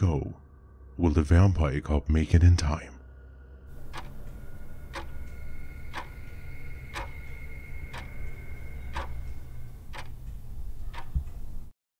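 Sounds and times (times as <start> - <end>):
low steady drone: 2.9 - 11.7
clock ticking: 3.7 - 11.7
faint high held tones: 3.7 - 11.7.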